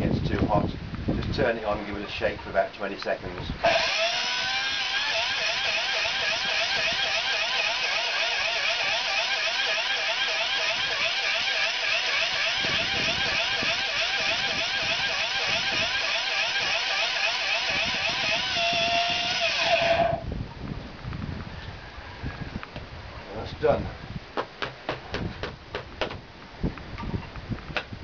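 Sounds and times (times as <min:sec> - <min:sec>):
electric blade grinder whining: 0:03.6 - 0:20.3.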